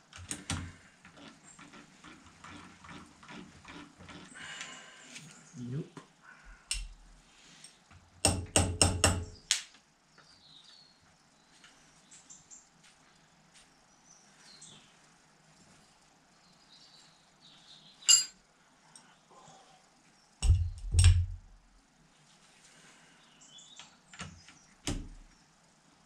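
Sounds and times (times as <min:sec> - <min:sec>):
metal tool clink: 0:18.1 - 0:18.4.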